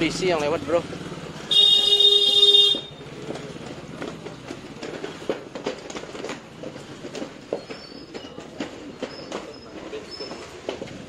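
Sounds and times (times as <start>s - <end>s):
busy street noise: 0.0s - 11.0s
vehicle horn blast: 1.5s - 3.0s.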